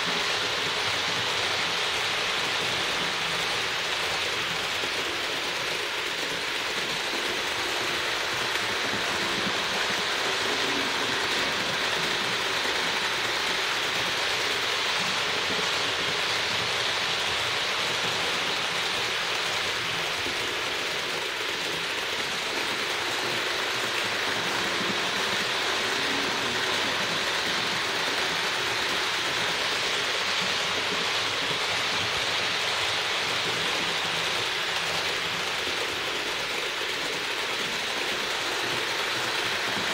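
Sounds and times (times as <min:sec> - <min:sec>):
model train running on rails: 0:00.0 - 0:39.9.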